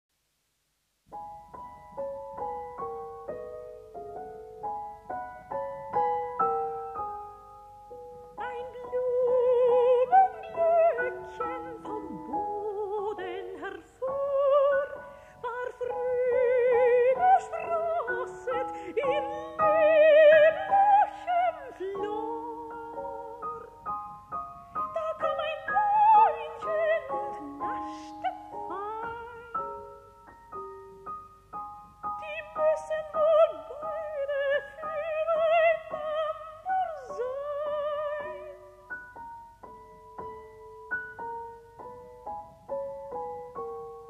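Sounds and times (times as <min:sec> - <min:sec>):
soprano singing with vibrato: 0:08.3 - 0:30.6, 0:32.0 - 0:39.2.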